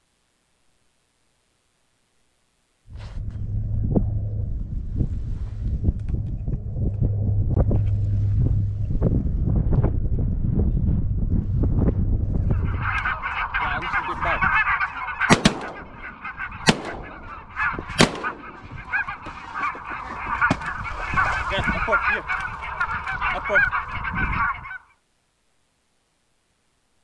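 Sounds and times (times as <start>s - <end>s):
geese honking: 12.2s - 25.0s
shotgun shots: 15.1s - 19.4s.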